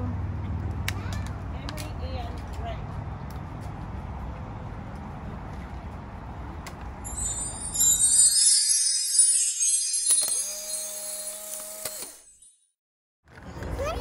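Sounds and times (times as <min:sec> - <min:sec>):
outdoor background noise: 0:00.0 - 0:08.4, 0:13.3 - 0:14.0
held musical notes: 0:07.0 - 0:11.6
twinkling christmas bells and chimes: 0:07.0 - 0:12.7.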